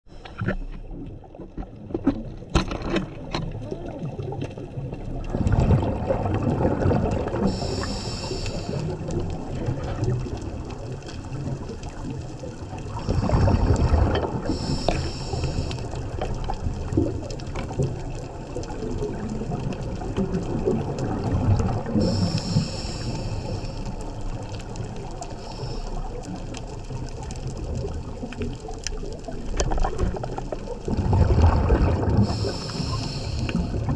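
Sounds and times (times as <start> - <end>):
underwater exhaled bubbles: 0.1 - 33.9
regulator inhalation hiss: 7.4 - 9.0, 14.5 - 16.0, 22.0 - 24.0, 25.3 - 26.1, 32.2 - 33.9.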